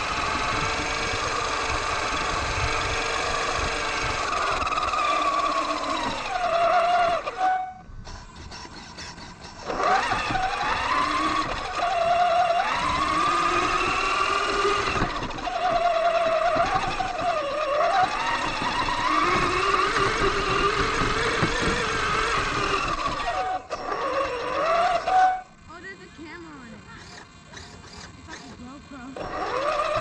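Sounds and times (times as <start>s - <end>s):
toy truck electric motor whining: 0.0s - 30.0s
suspension rumble and knocks: 9.0s - 25.7s, 28.6s - 30.0s.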